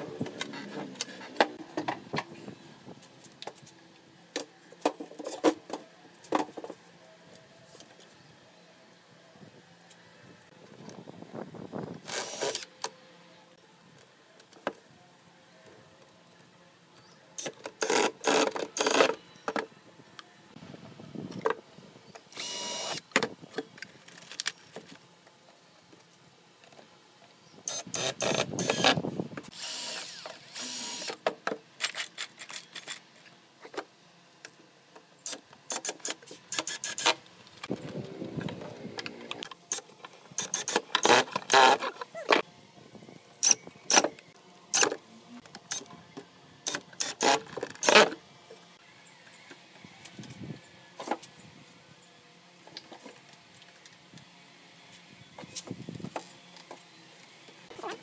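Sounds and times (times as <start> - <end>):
cordless drill driving screws: 12.0 - 12.6, 22.4 - 23.0, 27.7 - 31.2.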